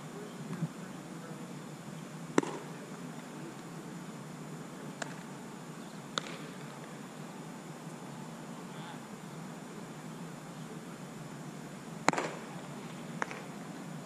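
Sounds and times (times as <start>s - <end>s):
baseball hitting glove pop: 2.4s - 2.7s, 5.0s - 5.2s, 6.2s - 6.5s, 12.1s - 12.4s.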